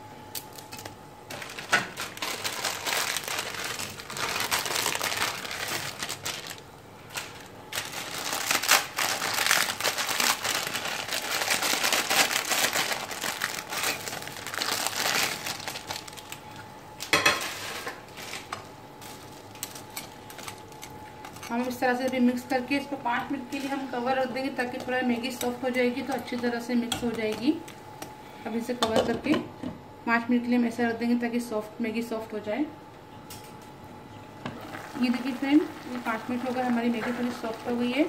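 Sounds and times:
dry noodles crunching: 0.4 - 16.6.

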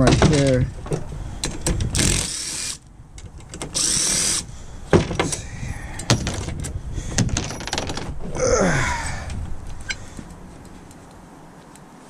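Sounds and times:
sharp metal knocks: 4.9 - 5.4, 6.0 - 8.2.

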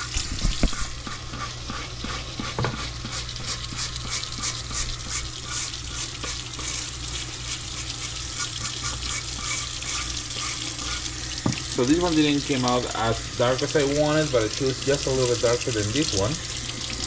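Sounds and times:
tap water running into sink: 0.0 - 17.0
brush scrubbing cutting board: 0.4 - 11.1.

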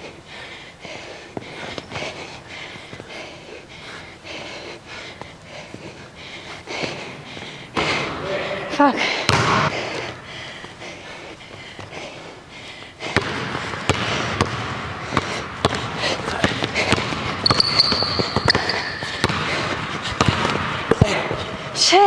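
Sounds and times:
basketball dribbling on wood floor: 9.3 - 9.9, 13.0 - 21.6
sneakers squealing on floor: 13.0 - 21.7.

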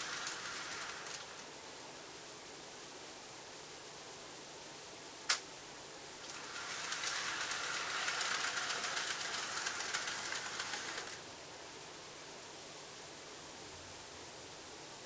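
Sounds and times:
model train running on track: 0.0 - 1.5, 6.2 - 11.3
sharp click: 5.3 - 5.5.

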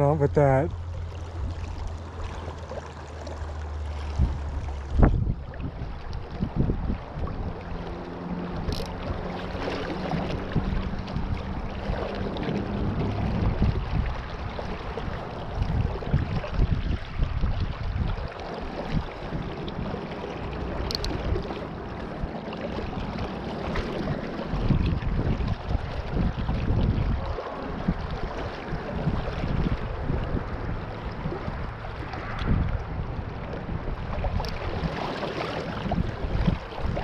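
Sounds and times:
wind rumbling on microphone: 0.0 - 37.0
river water rushing over rocks: 7.6 - 16.1, 27.2 - 37.0.

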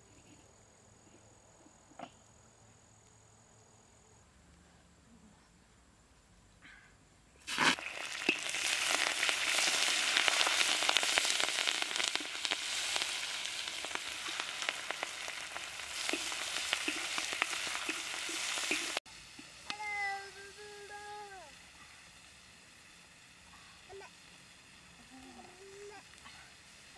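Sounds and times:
food sizzling in wok: 7.4 - 26.9
frying crackles and pops: 7.4 - 26.9.

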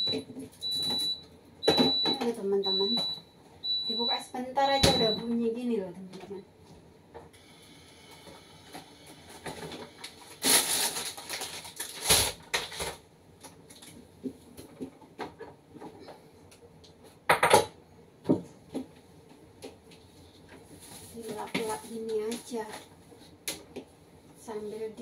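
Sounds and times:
bottles and jars clinking in fridge: 0.0 - 3.2.

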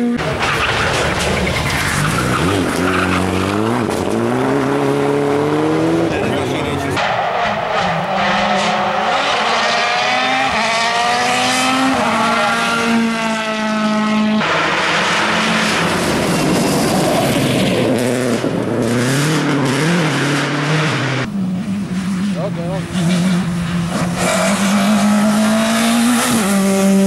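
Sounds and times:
rally car engine at full throttle: 0.0 - 27.0.

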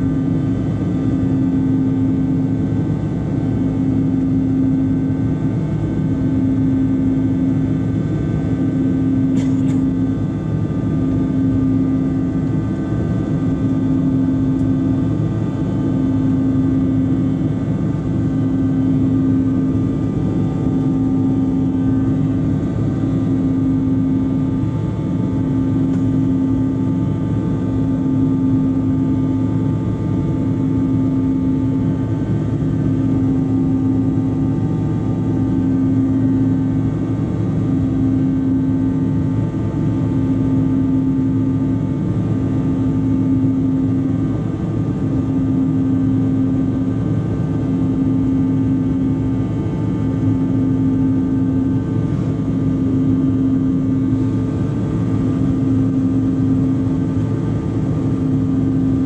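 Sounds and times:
jet engines humming: 16.2 - 38.8.

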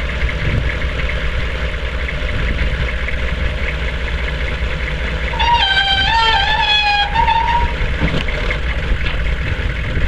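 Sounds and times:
diesel engine idling: 0.0 - 10.0
high-pitched hydraulic whine: 5.3 - 8.1.

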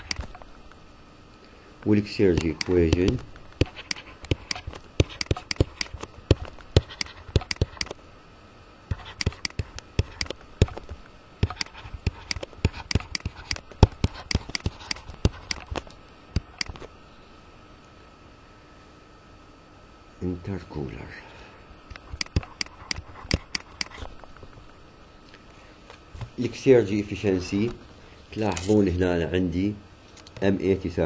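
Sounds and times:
stylus clicking on tablet screen: 2.3 - 8.0, 8.9 - 16.8, 22.2 - 24.0.

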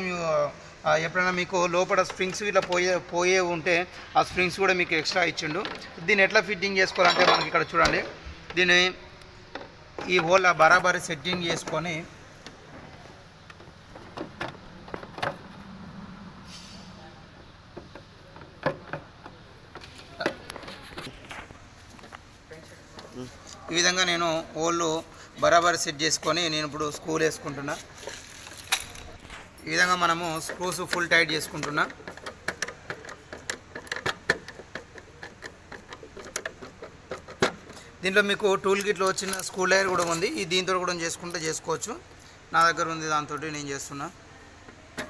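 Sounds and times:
hard plastic parts knocking and clicking: 1.8 - 3.2, 9.5 - 15.6, 17.7 - 21.4, 29.8 - 40.3.

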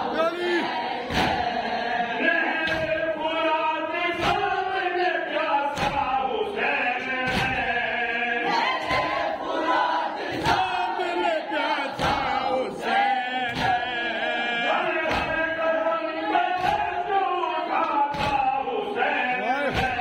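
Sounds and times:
men chanting in unison: 0.0 - 20.0
chest-beating thumps: 19.6 - 20.0.

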